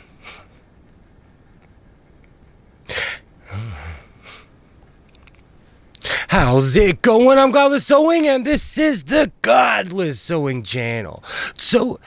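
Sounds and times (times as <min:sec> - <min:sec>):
faint breaths: 0:00.0 - 0:02.1, 0:02.8 - 0:04.8, 0:05.5 - 0:06.3, 0:11.2 - 0:11.6
low vocal hum: 0:02.9 - 0:04.5
man breath burst: 0:02.9 - 0:04.5, 0:06.0 - 0:06.3, 0:11.2 - 0:11.6.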